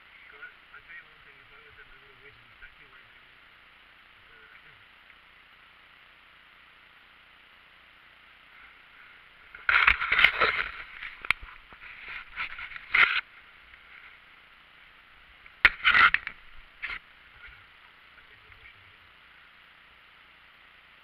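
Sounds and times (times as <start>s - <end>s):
paddle crunching through ice: 9.6s - 13.2s.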